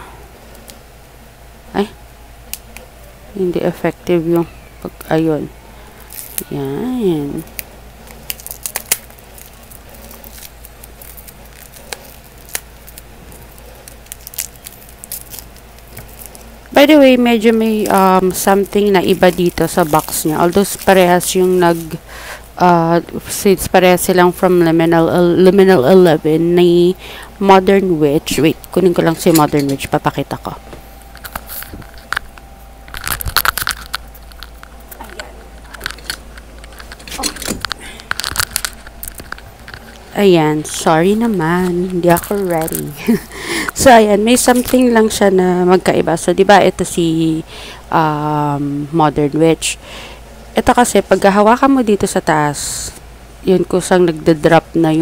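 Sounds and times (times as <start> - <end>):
plastic wrap crinkling: 5.9 - 22.6, 31.0 - 45.2.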